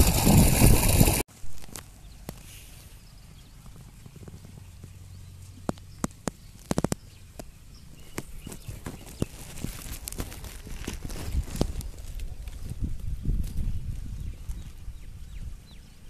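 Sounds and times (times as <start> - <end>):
sharp clicks and knocks: 5.6 - 7.5.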